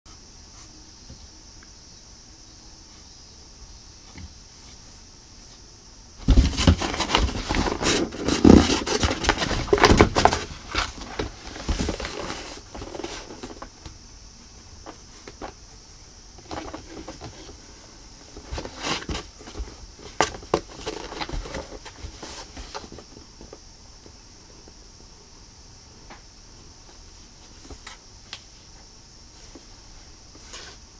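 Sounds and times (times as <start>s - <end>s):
cat claws scratching cardboard: 6.2s - 13.6s.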